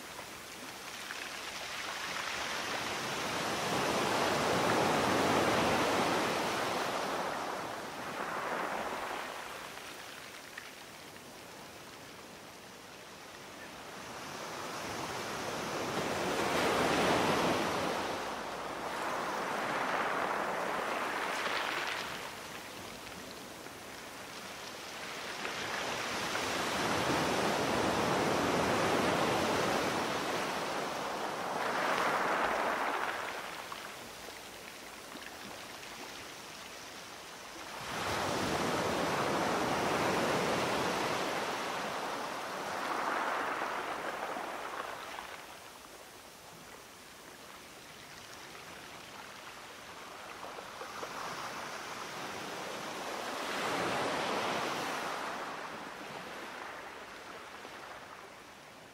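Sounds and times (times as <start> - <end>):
ocean waves breaking: 15.8 - 22.5, 25.6 - 33.7, 37.8 - 45.3.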